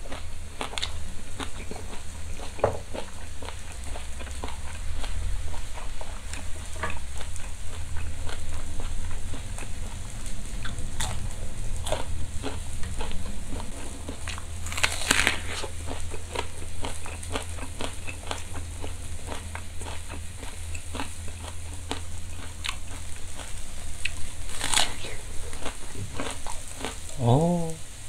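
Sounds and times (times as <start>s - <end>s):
chewing crunchy raw vegetables: 0.0s - 27.2s
low steady hum: 0.0s - 28.0s.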